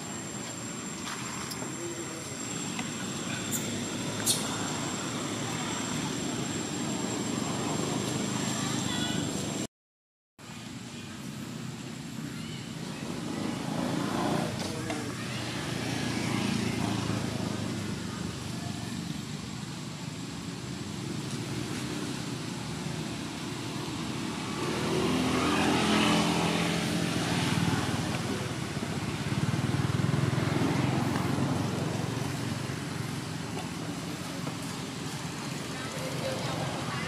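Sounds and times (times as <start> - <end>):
traffic running steadily: 0.0 - 9.7, 10.4 - 37.0
vehicle passing close by: 24.3 - 32.5.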